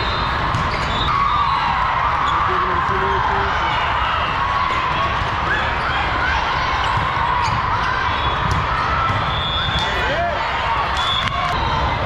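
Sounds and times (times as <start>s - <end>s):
shoe squeaks: 0.0s - 1.2s
volleyball hits: 6.8s - 10.2s.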